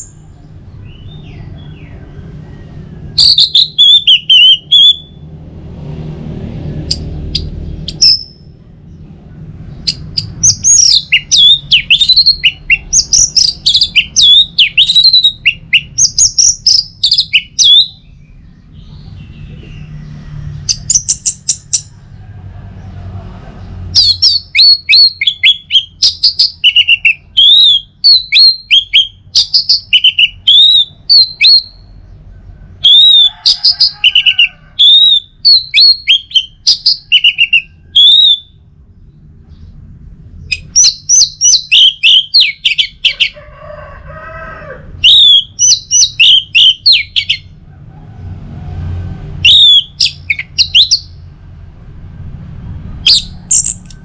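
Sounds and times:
thrush singing: 0.0s - 31.9s.

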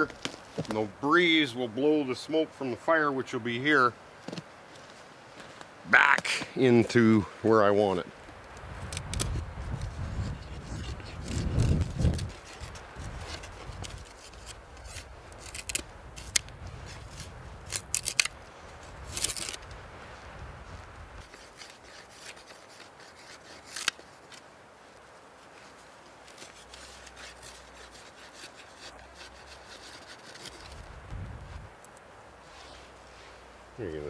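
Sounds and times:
knife scraping wooden board: 26.3s - 30.8s.

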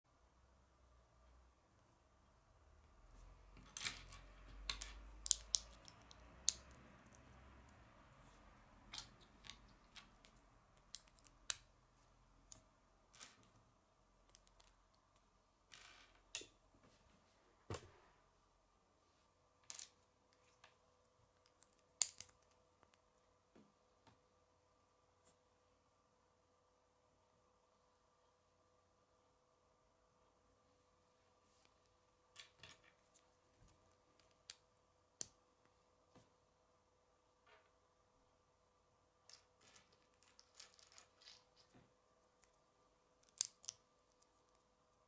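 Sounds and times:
plastic bricks clicking together: 4.0s - 6.8s.

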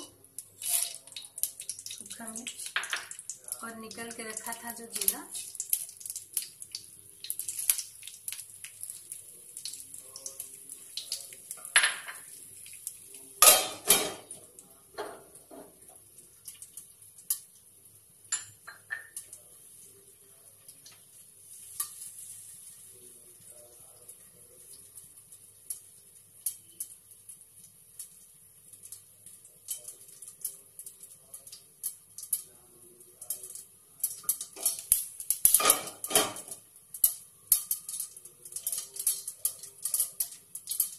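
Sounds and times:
spices sizzling in hot oil: 0.0s - 40.9s
metal lid and spoon clattering: 35.5s - 36.6s.

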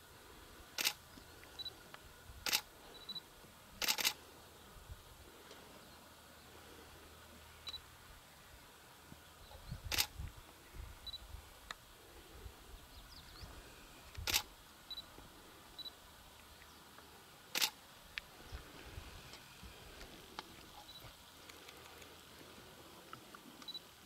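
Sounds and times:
camera shutter clicks: 0.8s - 1.0s, 2.5s - 2.7s, 3.8s - 4.2s, 9.9s - 10.1s, 14.2s - 14.5s, 17.6s - 17.8s.

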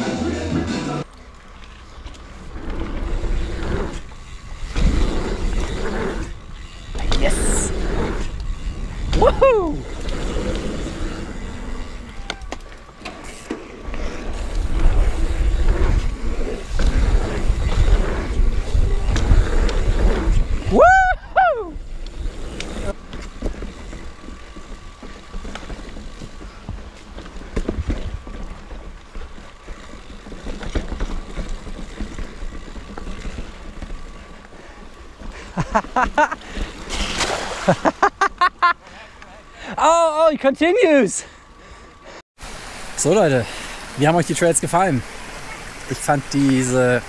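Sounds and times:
bike tyre noise: 0.2s - 47.0s
bike rattling and clicking: 1.0s - 42.2s, 43.1s - 47.0s
wind rumbling on microphone: 2.2s - 12.6s, 13.8s - 29.9s
wind noise on microphone: 14.2s - 22.9s.

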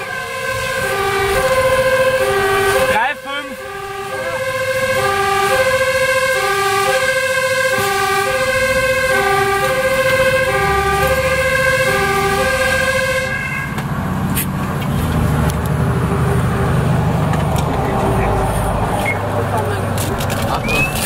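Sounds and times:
two-tone siren: 0.0s - 13.8s
fire truck engine rumble: 0.0s - 21.0s.

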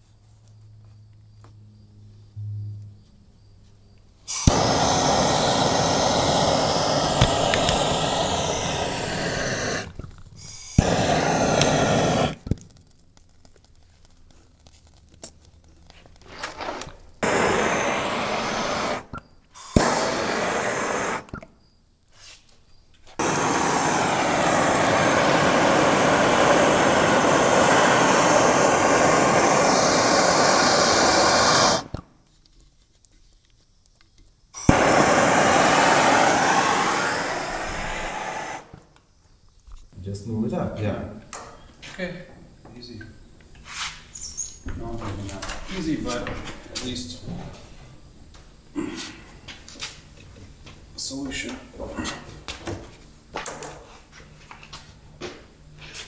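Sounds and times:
gas torch flame hissing: 4.3s - 12.6s, 16.2s - 21.5s, 23.2s - 32.0s, 34.6s - 39.0s
torch ignition click: 4.3s - 12.7s, 16.8s - 21.5s, 23.2s - 32.1s, 34.6s - 39.0s.

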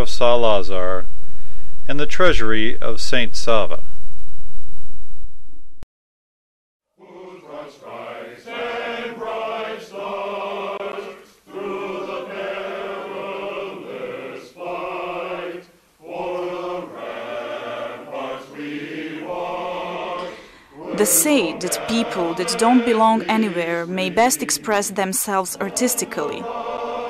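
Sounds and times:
men's choir singing a cappella: 6.9s - 27.0s.

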